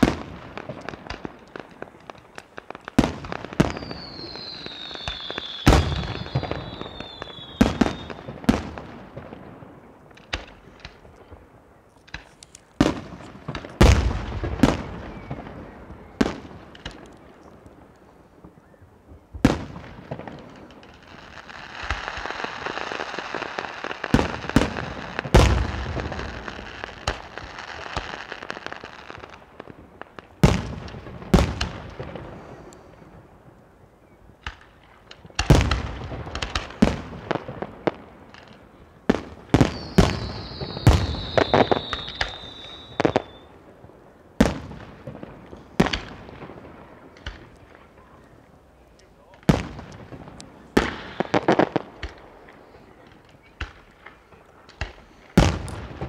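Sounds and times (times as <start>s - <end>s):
fireworks bursting with bangs: 0.0s - 56.0s
high falling whistle: 3.7s - 8.2s, 39.6s - 43.5s.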